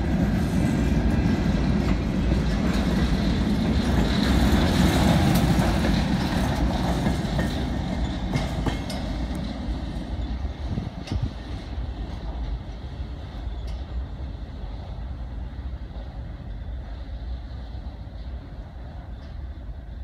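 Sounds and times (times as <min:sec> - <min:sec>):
freight train wheels rumbling: 0:00.0 - 0:20.0
wheels clicking over rail joints: 0:00.1 - 0:14.1.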